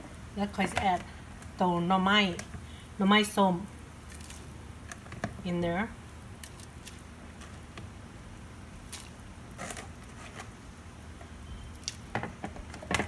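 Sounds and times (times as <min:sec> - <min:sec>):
soft squishing of wet food: 0:03.8 - 0:12.1.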